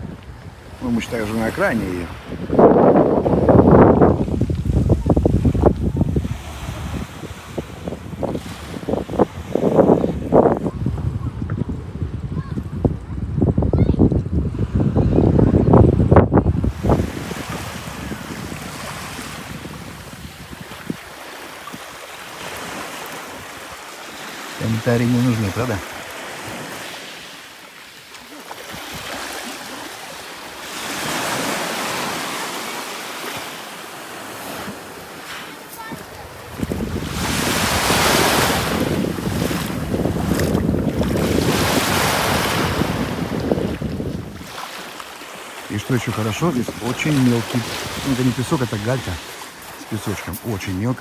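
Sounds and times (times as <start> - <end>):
wind buffeting microphone: 0.0 - 23.8, 34.3 - 44.8, 46.1 - 51.0
sea waves washing ashore: 0.0 - 51.0.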